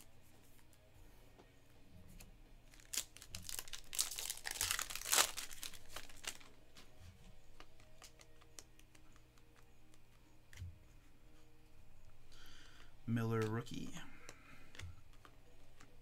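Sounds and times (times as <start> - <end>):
wrapper tearing and crinkling: 2.7 - 6.5.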